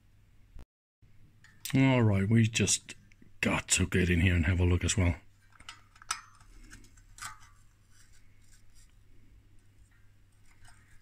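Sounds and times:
small metal parts clicking: 0:05.5 - 0:07.6.

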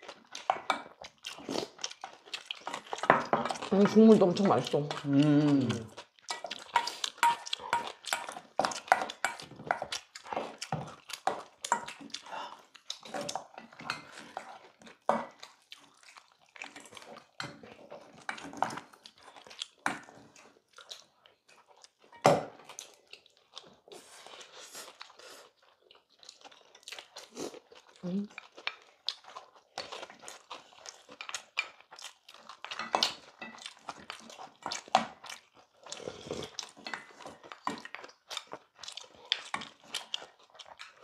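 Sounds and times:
people chewing: 0:00.0 - 0:41.0.

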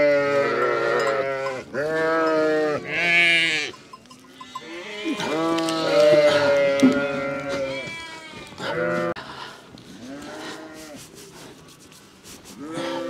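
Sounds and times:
sheep bleating: 0:00.0 - 0:09.2.

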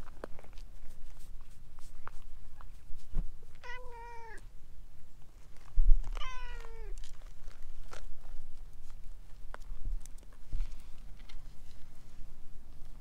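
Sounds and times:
cat meowing: 0:03.6 - 0:04.4, 0:06.2 - 0:07.0.

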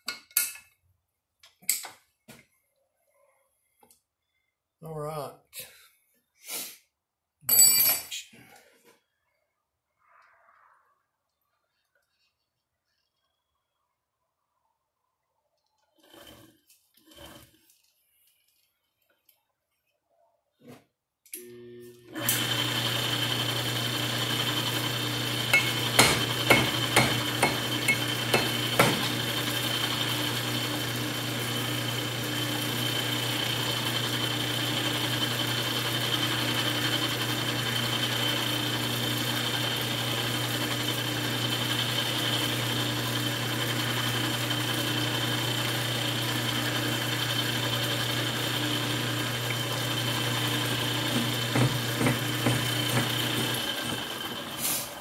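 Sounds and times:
metal lathe running: 0:22.1 - 0:55.0.

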